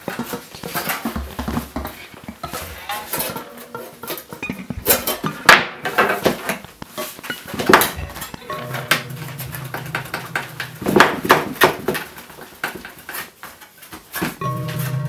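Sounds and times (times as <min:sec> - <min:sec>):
metallic clanks and scrapes: 0:00.0 - 0:15.0
low steady hum: 0:07.6 - 0:11.7.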